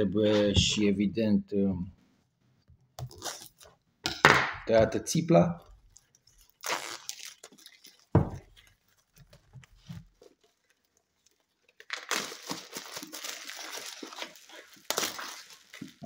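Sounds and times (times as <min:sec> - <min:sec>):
plastic shrink wrap crinkling: 0:05.6 - 0:16.0.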